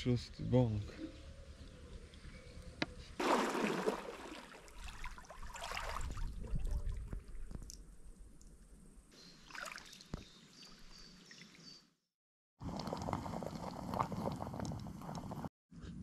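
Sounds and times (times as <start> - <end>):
kayak paddling: 3.0 - 6.1
bird chirping: 9.1 - 11.9.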